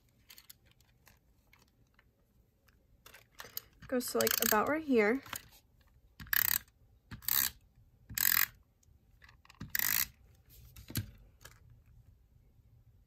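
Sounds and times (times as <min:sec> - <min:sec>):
tape pen rolling on paper: 0:04.2 - 0:04.7, 0:09.6 - 0:10.1.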